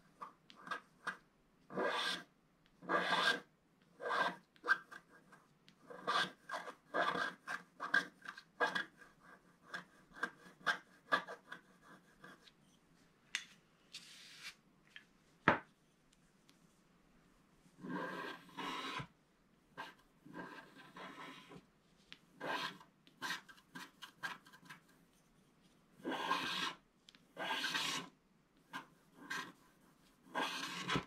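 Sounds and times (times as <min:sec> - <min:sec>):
stylus scratching paper: 0:00.1 - 0:12.6, 0:17.8 - 0:19.1, 0:19.8 - 0:21.6, 0:22.4 - 0:25.2, 0:26.0 - 0:26.8, 0:27.4 - 0:31.0.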